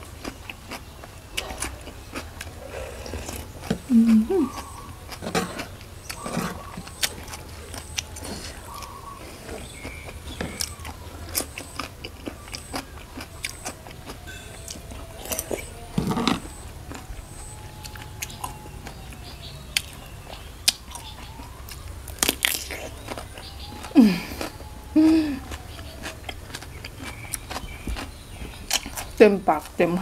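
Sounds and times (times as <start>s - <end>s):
wet chewing: 0.0s - 29.9s
crisp bites and clicks: 9.6s - 29.2s.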